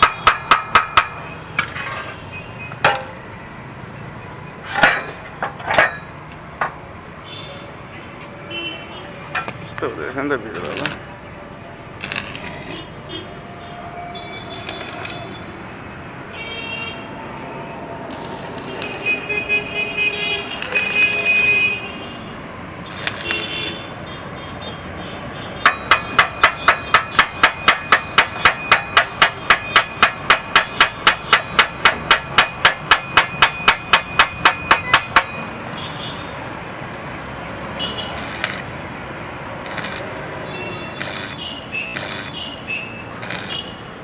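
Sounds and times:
hammer beating on steel pipe: 0:00.0 - 0:01.2, 0:25.6 - 0:35.4
metal parts clanking: 0:00.0 - 0:02.2, 0:02.8 - 0:03.2, 0:04.7 - 0:06.1.

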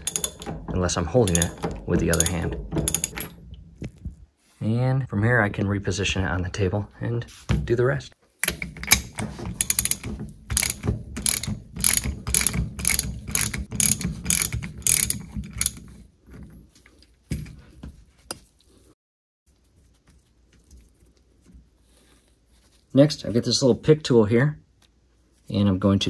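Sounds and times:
hand ratchet clicking: 0:00.0 - 0:03.4, 0:08.4 - 0:15.8.

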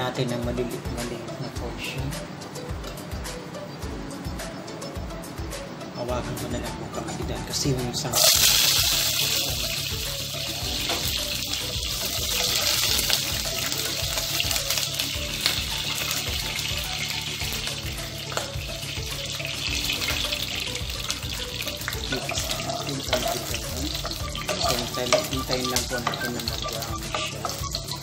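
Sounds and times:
music playing: 0:00.0 - 0:28.0
garlic sizzling in hot oil: 0:08.2 - 0:28.0.

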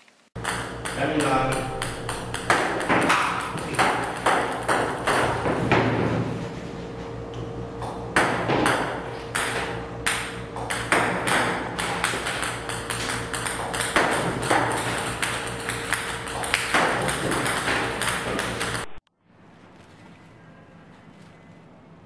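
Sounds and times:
steady hum: 0:00.0 - 0:22.0
ping-pong balls clicking on table: 0:00.4 - 0:05.5, 0:09.4 - 0:18.9.

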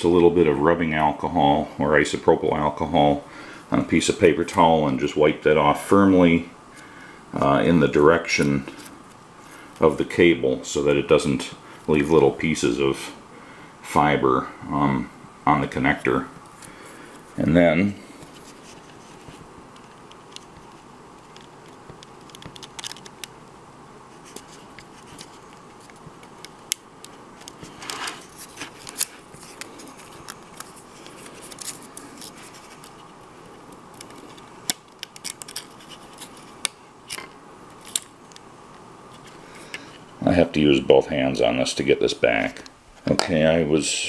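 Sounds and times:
faint steady hum: 0:00.0 - 0:44.0
plastic parts clicking and scraping: 0:18.2 - 0:23.3, 0:24.2 - 0:33.2, 0:33.9 - 0:38.4.

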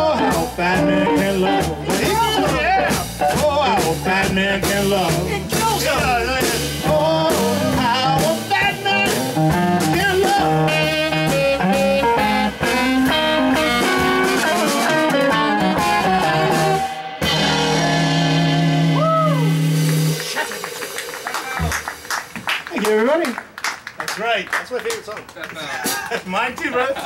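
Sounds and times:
upright bass: 0:00.0 - 0:20.6, 0:21.2 - 0:22.8
electric guitar: 0:00.0 - 0:22.4
drums: 0:00.0 - 0:27.0
tenor saxophone: 0:09.4 - 0:20.4.

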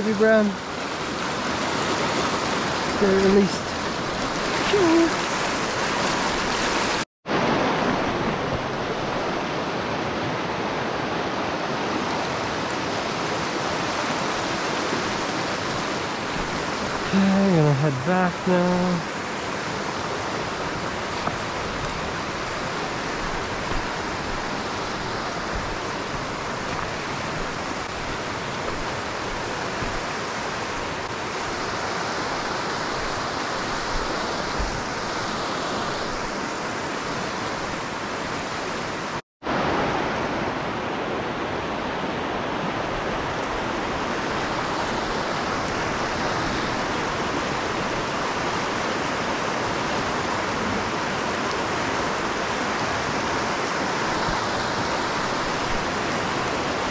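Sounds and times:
creek rushing over rocks: 0:00.0 - 0:56.9.

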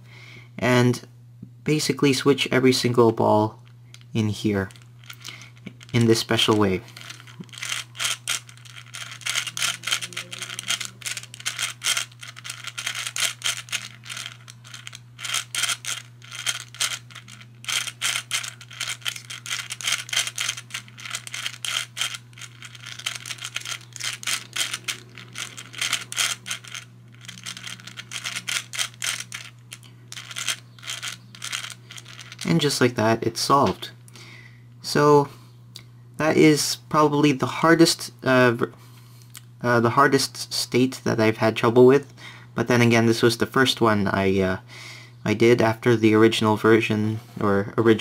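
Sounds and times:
low steady hum: 0:00.0 - 0:48.0
puzzle balls clicking: 0:02.8 - 0:33.0.

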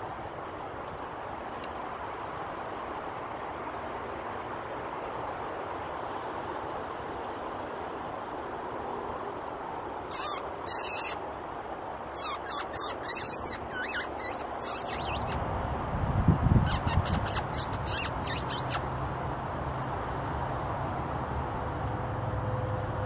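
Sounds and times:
high-pitched squeaks: 0:10.1 - 0:11.2, 0:12.2 - 0:15.4, 0:16.7 - 0:18.8.

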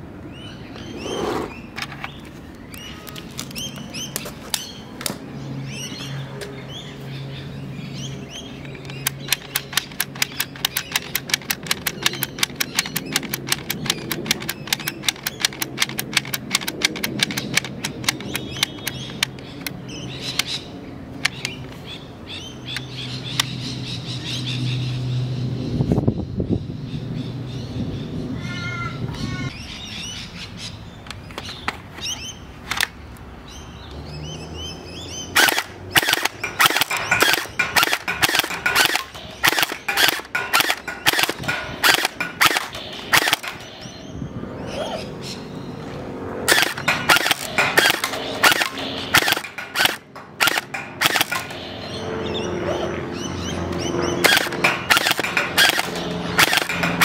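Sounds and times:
birds chirping: 0:00.0 - 0:57.0
gel blaster sharp rapid shots: 0:35.4 - 0:43.7, 0:46.5 - 0:51.7, 0:54.2 - 0:57.0.

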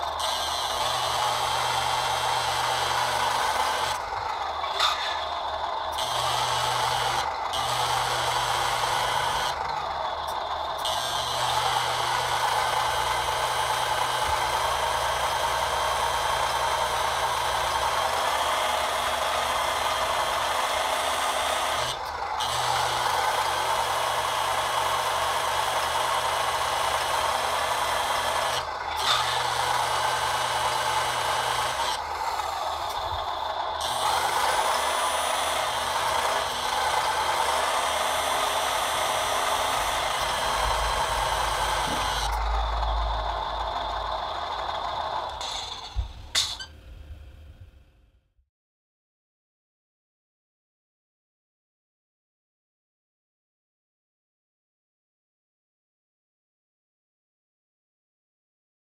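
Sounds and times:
hydraulic pump running: 0:00.0 - 0:47.8.

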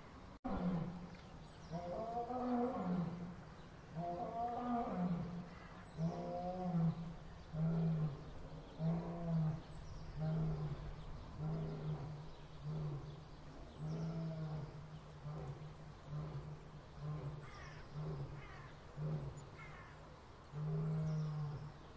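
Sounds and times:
lion roaring and grunting: 0:06.0 - 0:19.5, 0:20.6 - 0:21.7.

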